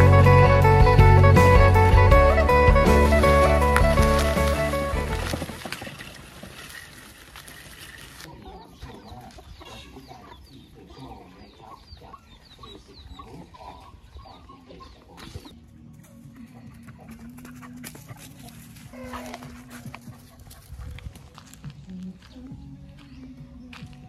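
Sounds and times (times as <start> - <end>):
background music: 0.0 - 5.7, 15.5 - 24.0
chickens clucking: 8.2 - 21.0
chicks peeping: 8.3 - 15.6.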